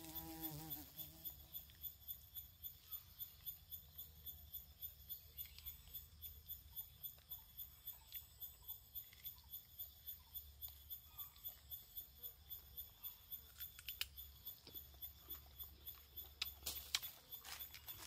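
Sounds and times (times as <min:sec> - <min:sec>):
insects chirping: 0:00.0 - 0:18.0
sharp clicks: 0:13.5 - 0:14.2.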